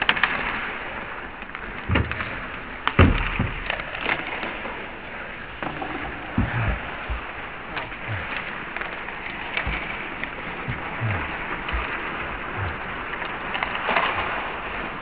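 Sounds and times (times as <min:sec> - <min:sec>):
knocks against hockey boards: 0:01.8 - 0:04.6, 0:05.6 - 0:12.9.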